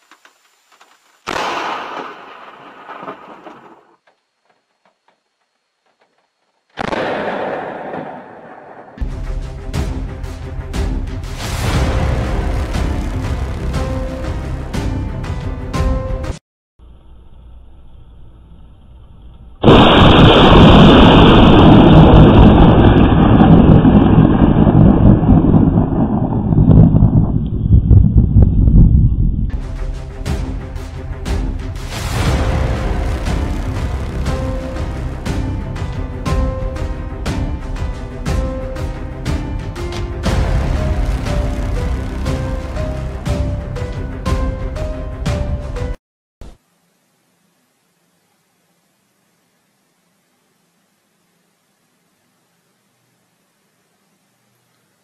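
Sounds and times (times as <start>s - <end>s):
light rain ticking on camera: 0.0s - 1.6s, 2.8s - 6.8s, 46.4s - 55.0s
lightning striking trees: 0.7s - 4.0s, 6.8s - 10.0s, 19.6s - 44.8s
loud thunder cracks: 19.6s - 29.4s, 40.2s - 43.5s
faint low hum: 46.4s - 55.0s.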